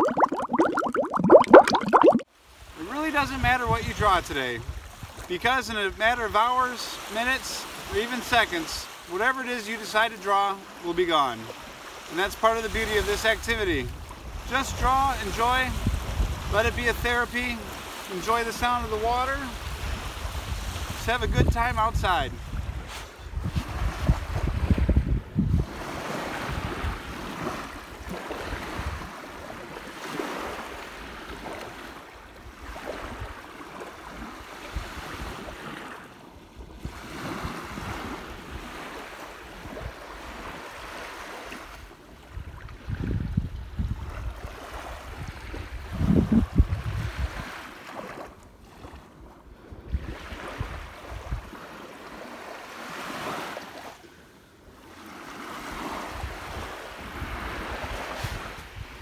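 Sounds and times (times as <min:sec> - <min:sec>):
waves washing onto sandy beach: 0:02.4 - 0:59.0
wind buffeting microphone: 0:15.7 - 0:16.6, 0:22.3 - 0:25.8, 0:42.4 - 0:44.4, 0:45.1 - 0:47.4.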